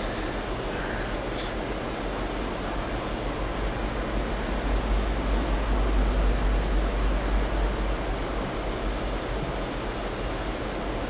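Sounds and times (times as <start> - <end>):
steady hiss: 0.0 - 11.0
low hum: 2.6 - 10.5.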